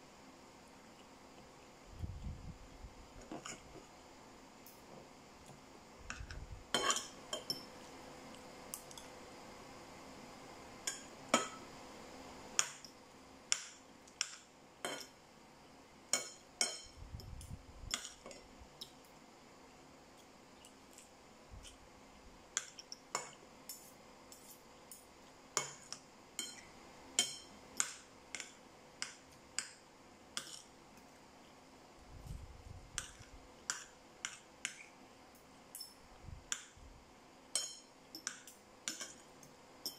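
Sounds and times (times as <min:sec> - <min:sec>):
cutlery clinking on ceramic bowls: 0:06.2 - 0:07.8, 0:14.2 - 0:15.2, 0:35.7 - 0:36.7, 0:37.5 - 0:39.2.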